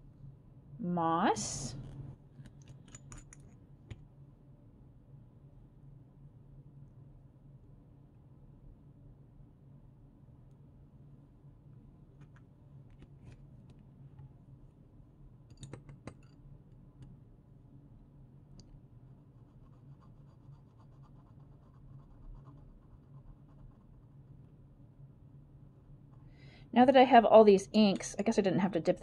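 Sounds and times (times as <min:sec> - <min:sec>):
pen nib scratching on paper: 0:19.3 - 0:24.2.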